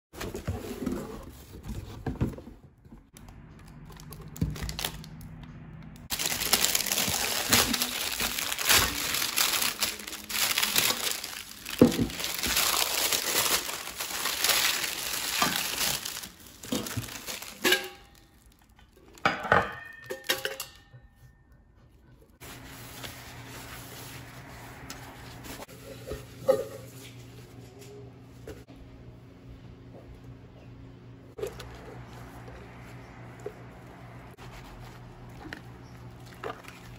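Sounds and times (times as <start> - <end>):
plastic bag crinkling: 3.4 - 5.4, 6.1 - 19.2.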